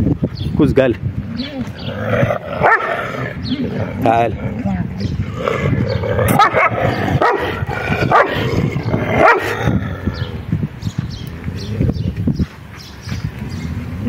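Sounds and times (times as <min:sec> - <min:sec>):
dog barking: 0:02.6 - 0:03.0, 0:06.3 - 0:08.4, 0:09.2 - 0:09.6.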